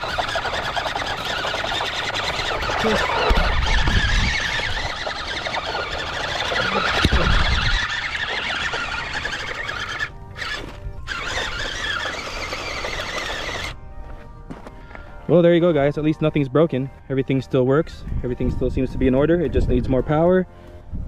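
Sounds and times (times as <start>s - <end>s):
electric motor whining: 0.0s - 14.2s
background music: 0.0s - 21.0s
low rumbles: 0.0s - 21.0s.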